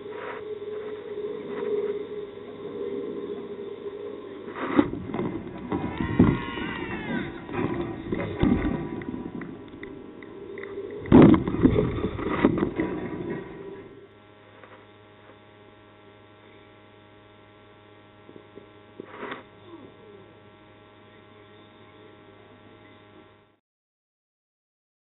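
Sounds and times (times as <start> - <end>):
low steady hum: 0.0 - 23.6
wind buffeting microphone: 4.9 - 13.8.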